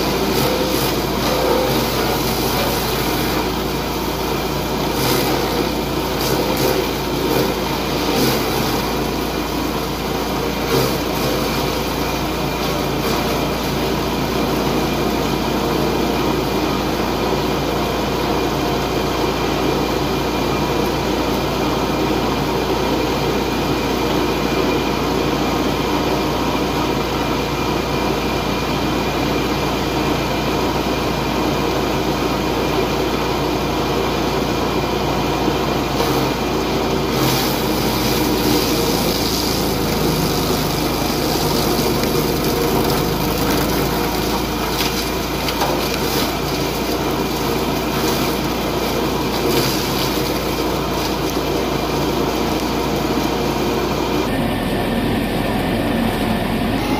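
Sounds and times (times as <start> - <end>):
branches grinding in chipper: 0.0 - 27.7, 33.9 - 56.8
wood chipper engine running: 0.0 - 56.9.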